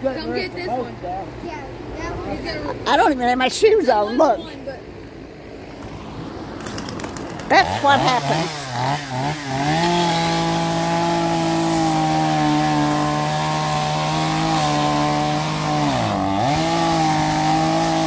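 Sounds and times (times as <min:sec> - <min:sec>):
chainsaw engine whine: 0:05.8 - 0:18.0.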